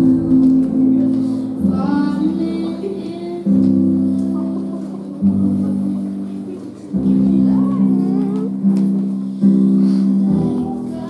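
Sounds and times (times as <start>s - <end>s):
slow music with low chords: 0.0s - 11.0s.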